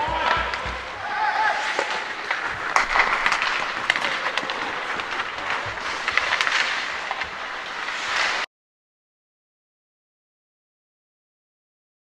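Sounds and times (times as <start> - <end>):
hockey sticks and puck clacking: 0.0 - 8.5
skates hissing on ice: 0.0 - 8.5.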